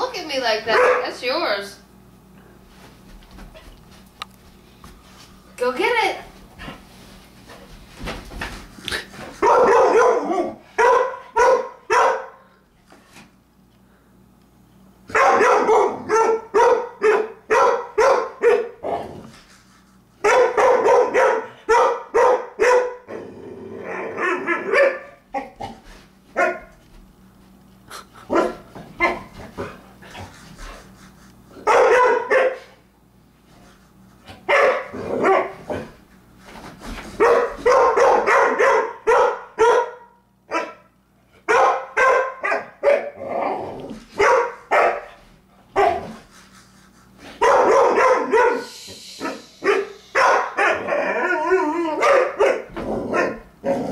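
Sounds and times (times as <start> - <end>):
dog barking: 0.7 - 1.2, 9.4 - 12.4, 15.1 - 18.9, 20.2 - 23.1, 24.2 - 25.5, 26.4 - 26.7, 28.3 - 29.3, 31.6 - 32.8, 34.5 - 35.8, 37.2 - 43.2, 44.2 - 45.1, 45.8 - 46.2, 47.4 - 51.2, 52.0 - 53.8.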